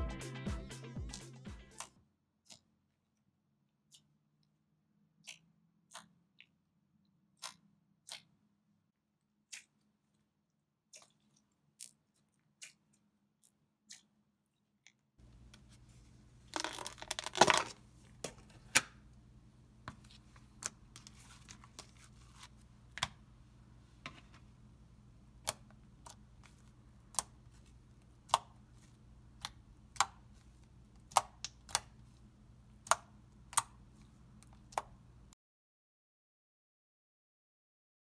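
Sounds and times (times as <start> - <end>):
faint steady hum: 15.2 - 35.4
slime crackling and popping: 16.5 - 17.7.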